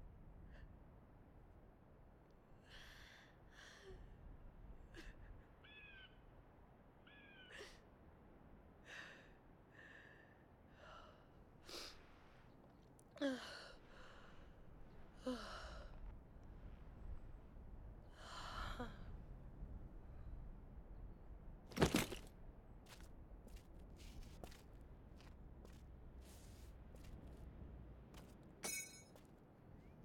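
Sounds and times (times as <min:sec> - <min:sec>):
woman sobbing: 0:04.9 - 0:05.4.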